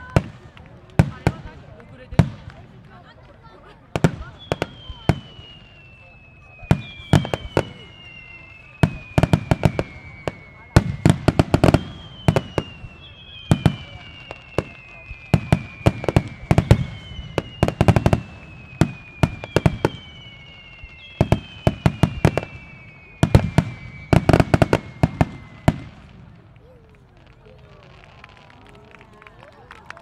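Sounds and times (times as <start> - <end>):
firework whistles sliding down: 4.2 - 26.2.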